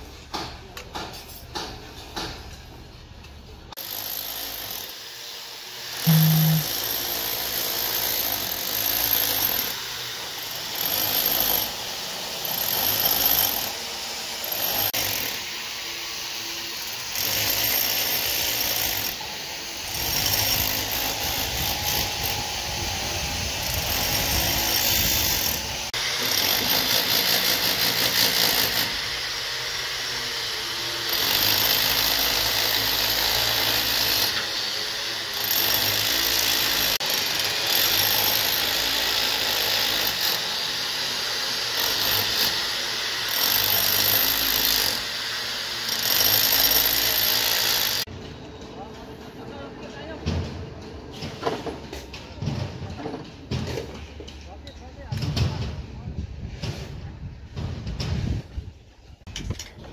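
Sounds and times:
construction site noise: 0:00.0 - 0:59.9
handheld power tool running: 0:03.8 - 0:48.1.

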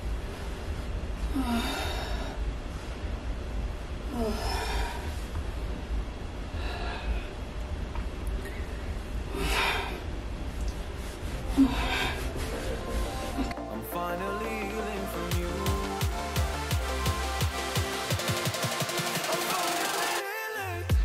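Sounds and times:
steady low hum: 0:00.0 - 0:18.3
woman breathing heavily: 0:00.1 - 0:05.8, 0:06.4 - 0:07.8, 0:08.7 - 0:13.8.

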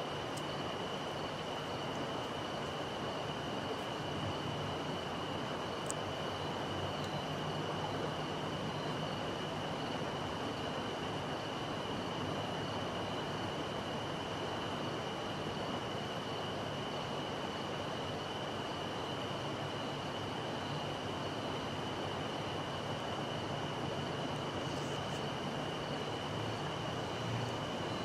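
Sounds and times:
steady hiss: 0:22.4 - 0:28.0.

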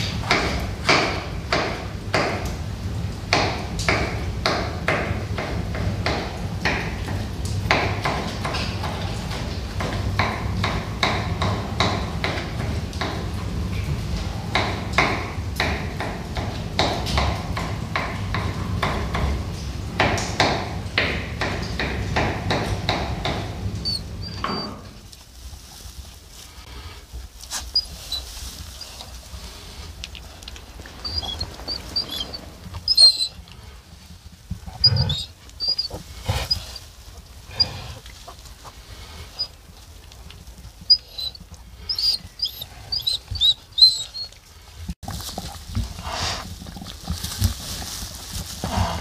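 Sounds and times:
piglets squeaking: 0:23.7 - 0:24.8, 0:27.5 - 0:29.1, 0:30.4 - 0:33.4, 0:34.7 - 0:36.9, 0:39.3 - 0:39.6, 0:40.8 - 0:44.4
rustling in straw: 0:24.0 - 0:49.0.

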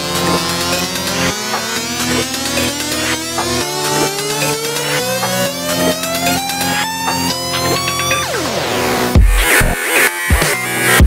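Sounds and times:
heavy sub-bass and drum hits: 0:09.2 - 0:09.8.

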